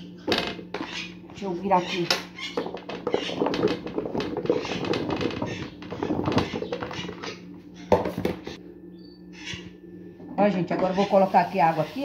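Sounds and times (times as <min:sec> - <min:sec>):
scraping on plastic board: 0:00.7 - 0:08.6.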